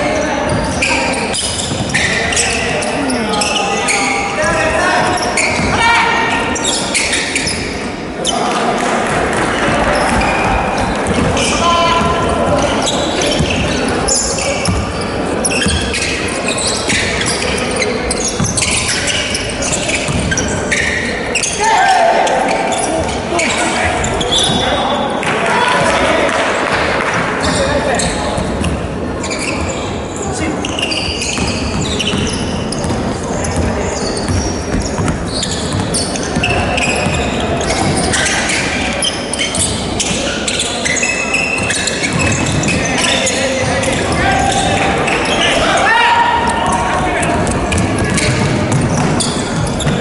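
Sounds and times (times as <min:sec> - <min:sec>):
sneakers squeaking on court: 0:00.0 - 0:26.1, 0:27.1 - 0:50.0
basketball dribbling on wooden floor: 0:46.7 - 0:50.0.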